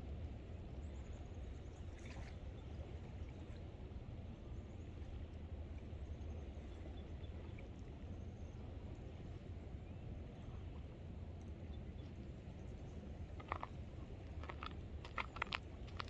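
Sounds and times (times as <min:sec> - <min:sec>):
flowing river water: 0:12.1 - 0:16.0.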